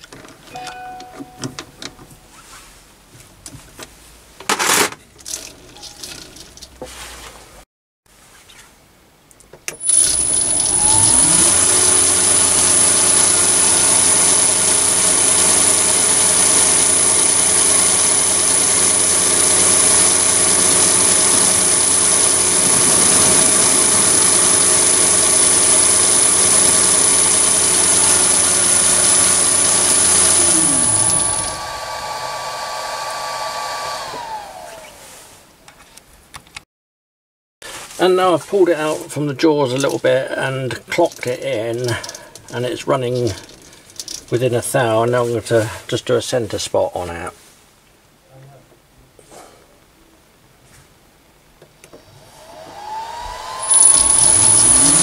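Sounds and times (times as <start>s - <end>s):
lathe motor whining: 9.8s - 35.1s, 52.0s - 55.0s.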